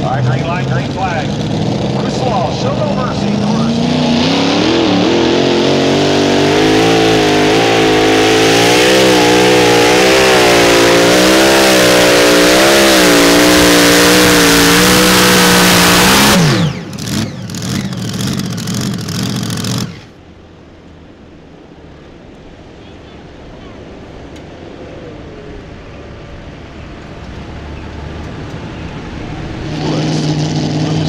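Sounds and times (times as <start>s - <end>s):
tractor engine at full throttle: 0.0s - 20.2s, 27.0s - 31.0s
engine crackling and popping: 13.2s - 20.2s, 26.9s - 31.0s.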